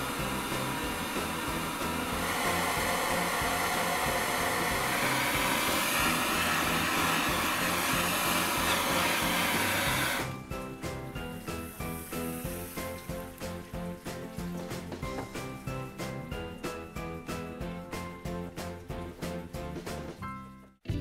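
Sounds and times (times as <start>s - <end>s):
gas torch flame hissing: 0.0s - 10.4s, 11.4s - 13.6s.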